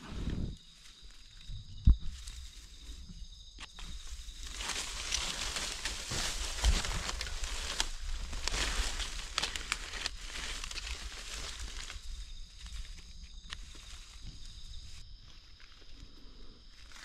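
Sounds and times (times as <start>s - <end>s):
dry leaves rustling: 3.8s - 15.0s.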